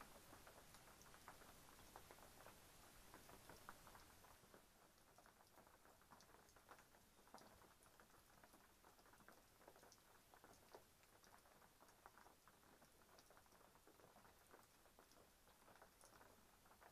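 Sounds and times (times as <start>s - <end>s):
raindrops pattering: 0.0s - 16.9s.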